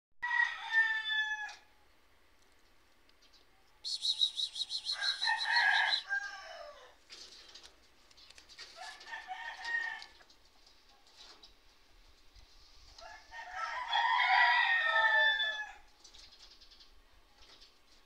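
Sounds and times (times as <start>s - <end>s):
rooster crowing: 0.2s - 1.7s, 4.8s - 7.0s, 8.8s - 10.2s, 13.0s - 15.9s
fast high chirps: 3.8s - 6.0s.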